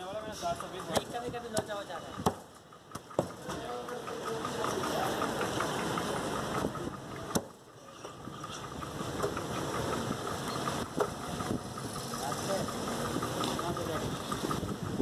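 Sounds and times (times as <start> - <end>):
steady mechanical hum: 0.0 - 15.0
cleaver chopping on wooden block: 0.8 - 3.4, 7.3 - 7.6.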